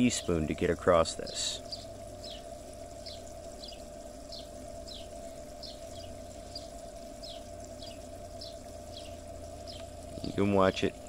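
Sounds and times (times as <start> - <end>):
steady hum: 0.0 - 11.0
bird chirping: 1.6 - 10.3.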